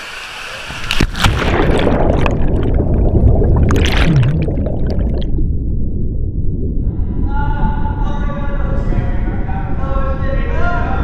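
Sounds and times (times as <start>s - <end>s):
splash into pool: 0.7s - 5.0s
underwater rushing and bubbling: 0.7s - 9.8s.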